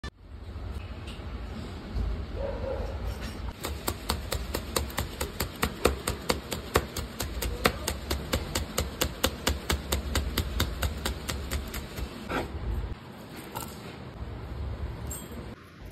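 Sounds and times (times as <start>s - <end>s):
knife chopping on wooden board: 3.6s - 12.5s.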